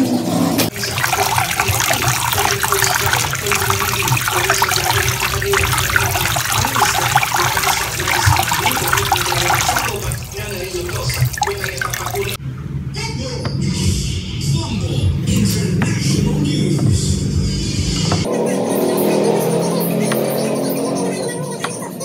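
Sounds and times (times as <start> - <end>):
rice swishing in water: 0.7 - 12.4.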